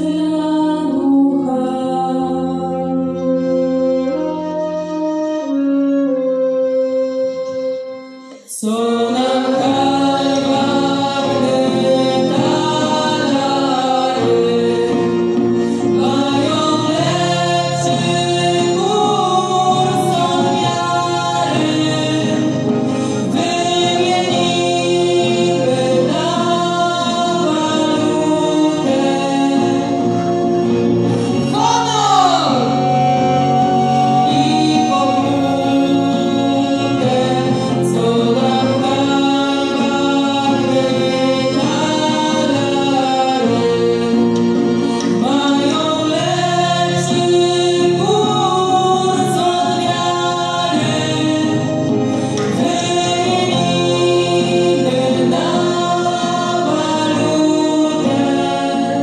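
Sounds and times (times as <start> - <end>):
folk band playing: 0.0 - 59.0
group singing in unison: 8.5 - 59.0.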